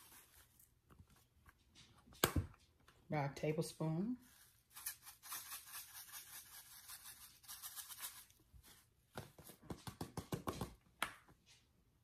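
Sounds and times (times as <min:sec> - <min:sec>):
pepper grinder scratching: 0:04.7 - 0:08.3.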